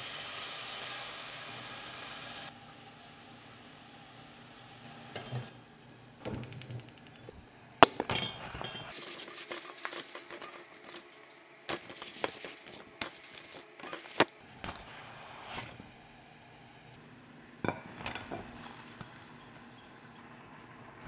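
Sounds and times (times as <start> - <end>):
clinks of small hard objects: 6.6 - 14.4.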